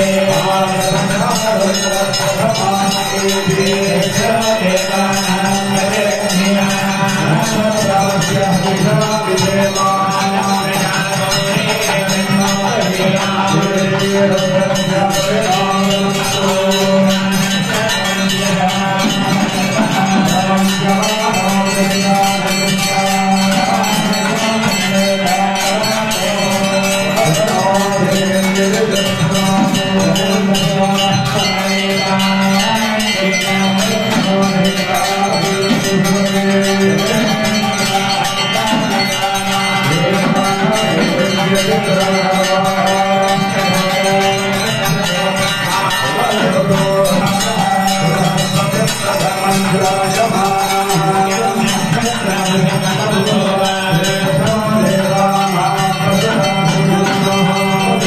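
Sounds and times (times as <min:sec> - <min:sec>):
music: 0:00.0 - 0:58.0
temple bells ringing rapidly: 0:00.0 - 0:58.0.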